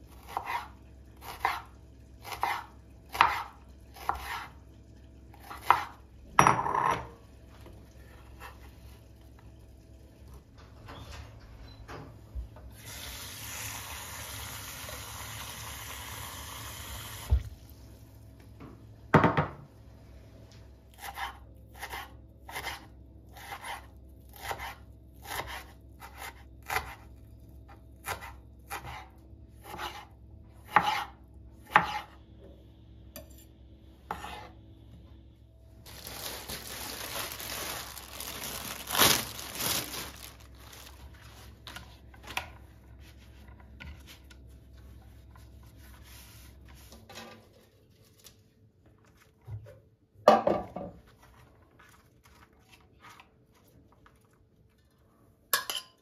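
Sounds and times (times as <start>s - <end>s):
knife chopping on wooden board: 2.3s - 4.4s, 28.0s - 32.1s
knife scraping on board: 28.1s - 32.2s, 34.1s - 34.6s.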